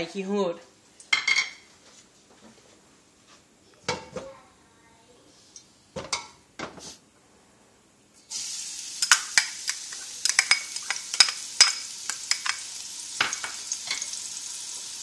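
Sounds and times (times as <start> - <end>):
shallots sizzling in hot oil: 8.2 - 15.0.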